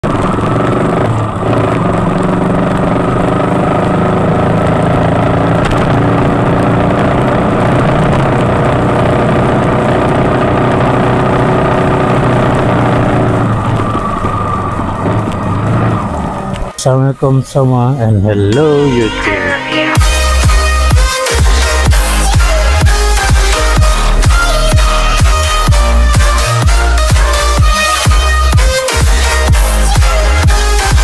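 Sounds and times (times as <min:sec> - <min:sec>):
wind rushing over microphone: 0:00.0 - 0:16.8
motorcycle engine running: 0:00.0 - 0:17.4, 0:20.0 - 0:31.0.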